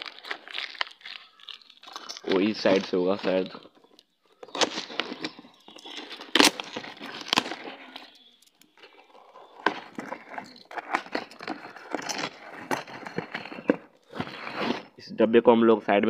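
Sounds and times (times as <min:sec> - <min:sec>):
cardboard box tearing open: 0:04.5 - 0:14.9.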